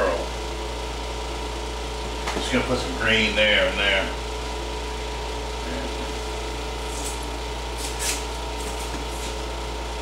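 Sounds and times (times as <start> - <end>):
window air conditioner humming: 0.0 - 10.0.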